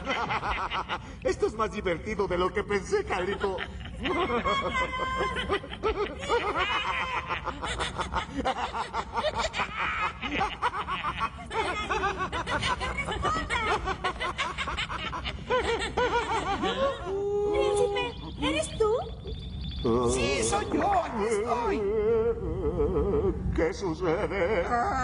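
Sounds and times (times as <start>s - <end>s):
cartoon voices snickering and chuckling: 3.2s - 18.5s.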